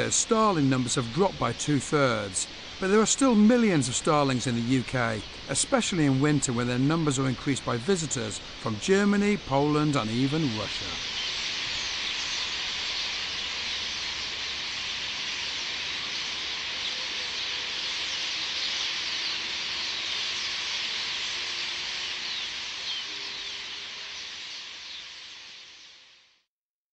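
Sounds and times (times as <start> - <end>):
flock of starlings chattering: 0.0 - 25.3.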